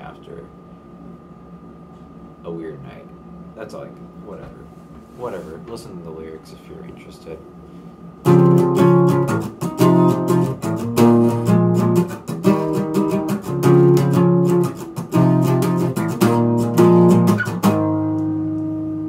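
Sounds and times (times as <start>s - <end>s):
acoustic guitar strumming: 8.2s - 19.0s.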